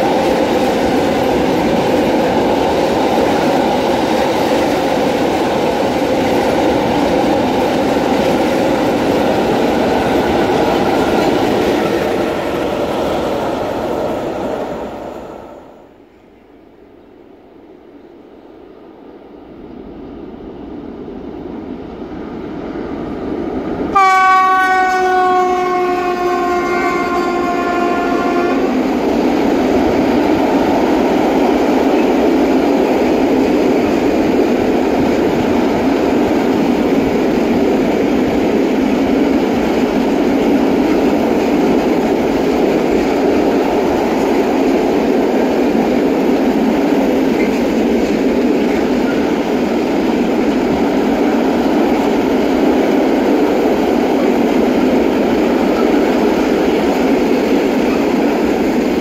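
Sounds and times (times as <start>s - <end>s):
train wheels on rails: 0.0s - 16.4s, 19.4s - 59.0s
locomotive horn: 23.9s - 28.9s.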